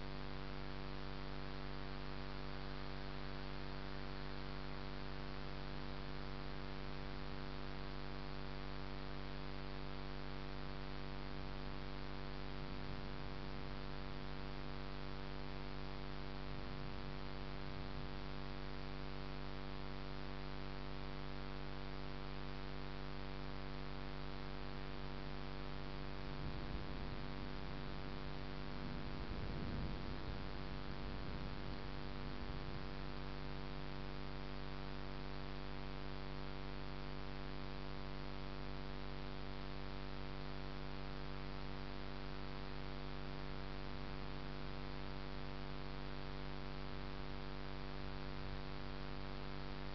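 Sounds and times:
electrical hum: 0:00.0 - 0:49.9
faint low rumbles: 0:26.3 - 0:33.0.

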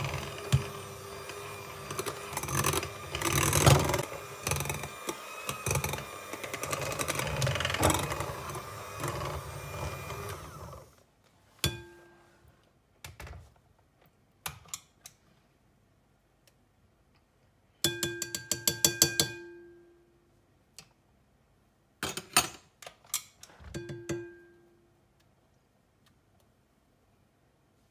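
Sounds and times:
electric hand mixer beating cream: 0:00.0 - 0:11.0
spoon clinking on metal beaters: 0:17.8 - 0:19.5.

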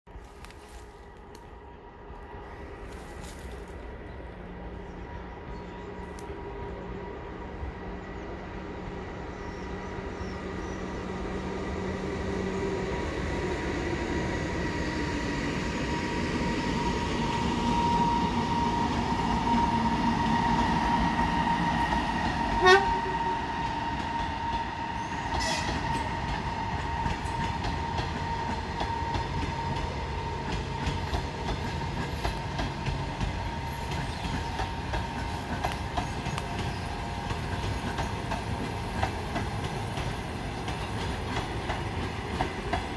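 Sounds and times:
electric locomotive whine and rumble: 0:00.1 - 0:42.9
train wheels clickety-clack: 0:14.4 - 0:42.9
train horn toot: 0:21.6 - 0:26.2.

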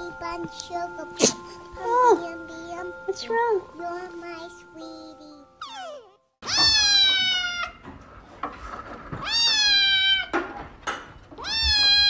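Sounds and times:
kitten meowing: 0:05.6 - 0:07.8, 0:09.2 - 0:10.3, 0:11.4 - 0:12.0.

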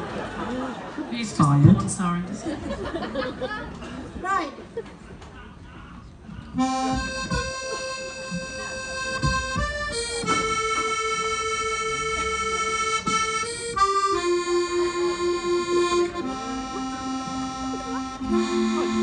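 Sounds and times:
low thumps: 0:06.6 - 0:17.6
accordion long held notes: 0:06.6 - 0:19.0.

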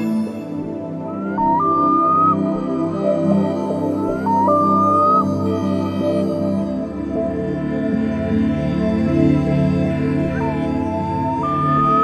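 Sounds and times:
ambient music sustained tones: 0:00.0 - 0:12.0.

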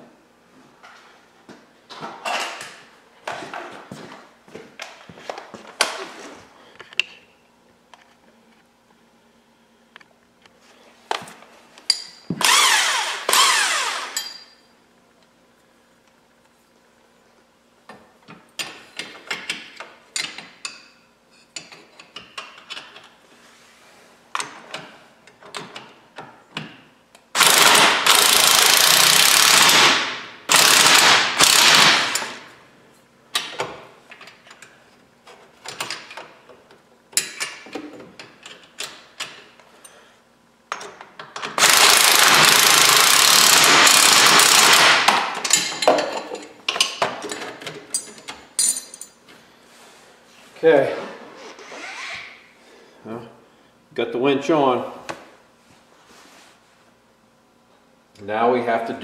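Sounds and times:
impact wrench bursts: 0:12.3 - 0:14.4, 0:27.3 - 0:32.5, 0:41.5 - 0:45.4
tools clinking on steel: 0:14.1 - 0:14.6, 0:45.4 - 0:49.2.

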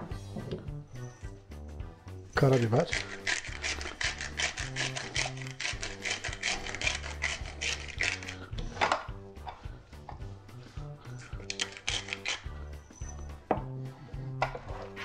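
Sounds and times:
pepper grinder grinding: 0:02.4 - 0:09.1, 0:11.1 - 0:12.6.

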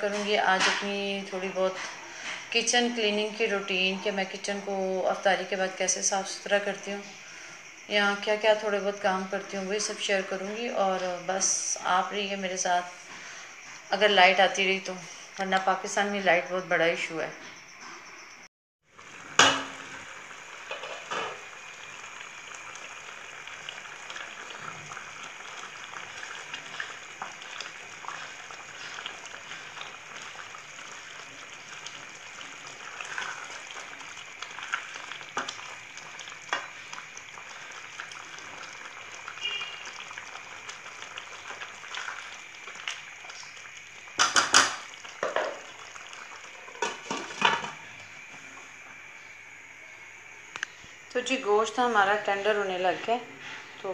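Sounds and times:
curry simmering and sizzling: 0:00.0 - 0:16.1, 0:18.8 - 0:50.4
lid and utensil clanking on pan: 0:19.4 - 0:19.8, 0:20.7 - 0:21.4, 0:44.2 - 0:45.6, 0:46.8 - 0:47.8
spatula stirring in a pan: 0:22.4 - 0:47.6.

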